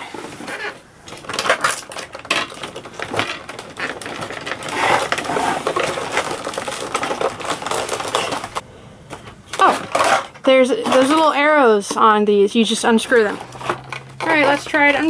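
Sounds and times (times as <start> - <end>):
cardboard box creaking: 0.1 - 8.6, 13.0 - 15.0
hard plastic clicking and rattling: 1.1 - 12.1, 13.1 - 15.0.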